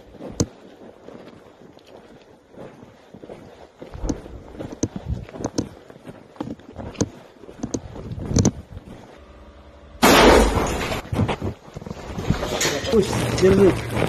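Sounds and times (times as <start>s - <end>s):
footsteps on rubble: 0.0s - 9.2s, 10.0s - 14.0s.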